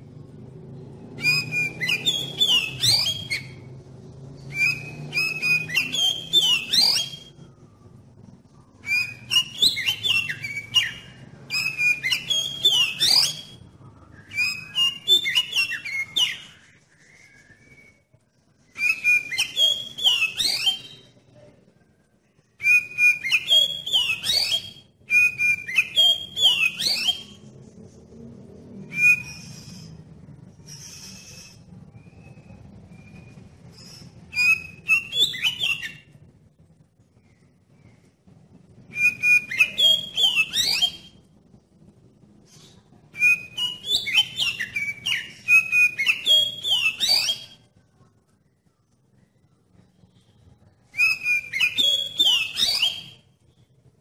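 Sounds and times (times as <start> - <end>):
bird singing whistled phrases: 1.1 - 3.7, 4.5 - 7.5, 8.7 - 21.2, 22.6 - 27.5, 28.9 - 36.1, 38.9 - 41.2, 42.6 - 47.7, 50.2 - 53.6.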